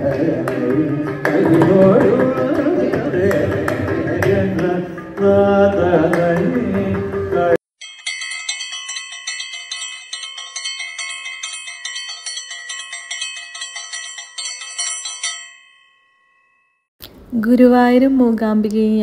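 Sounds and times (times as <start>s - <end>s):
bells ringing: 7.8s - 16.9s.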